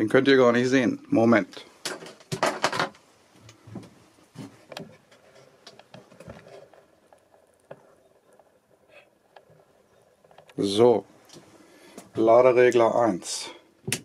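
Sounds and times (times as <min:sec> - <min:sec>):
faint clicks and rustles: 0:01.8 - 0:12.8.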